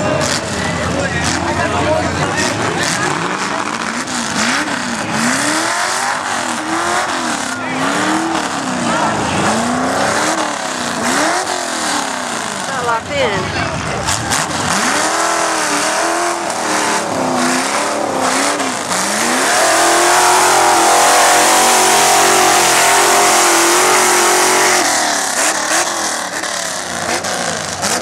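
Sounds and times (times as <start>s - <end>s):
truck churning through mud: 0.0s - 12.9s, 13.7s - 28.0s
truck engine revving: 0.0s - 28.0s.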